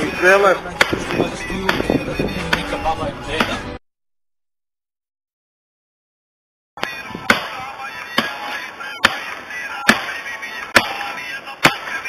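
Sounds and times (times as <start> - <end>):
hatchet chopping tree trunk: 0.8 - 2.7, 7.2 - 11.9.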